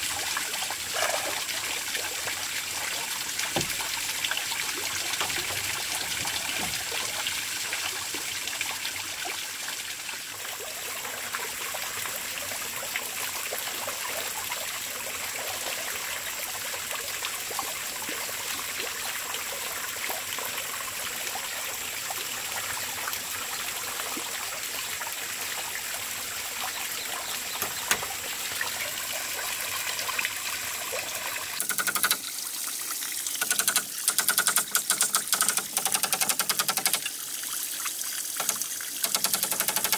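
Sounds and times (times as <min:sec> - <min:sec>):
water trickling into pond: 0:00.0 - 0:39.9
sharp knocks: 0:03.6 - 0:04.0.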